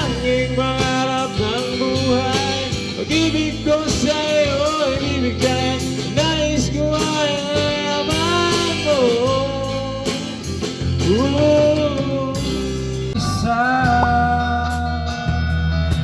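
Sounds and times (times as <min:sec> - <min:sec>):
bass guitar: 0:00.0 - 0:16.0
drums with cymbals: 0:00.0 - 0:16.0
guitar: 0:00.0 - 0:16.0
keyboard: 0:00.0 - 0:16.0
person singing long notes: 0:13.2 - 0:15.6.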